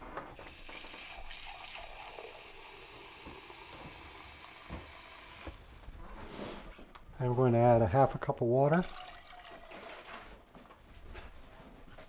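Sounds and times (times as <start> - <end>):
champagne fizzing: 0.4 - 5.4, 8.8 - 10.0.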